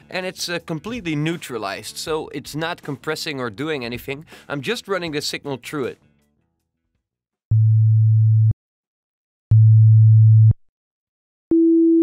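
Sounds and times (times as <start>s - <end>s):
low sine wave test tone: 7.5s - 8.6s, 9.5s - 10.6s.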